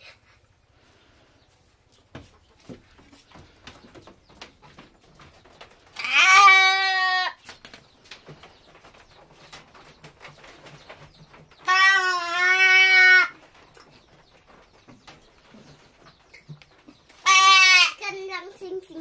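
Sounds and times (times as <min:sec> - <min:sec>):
goat bleating: 0:06.0 - 0:07.4, 0:11.6 - 0:13.4, 0:17.2 - 0:18.0.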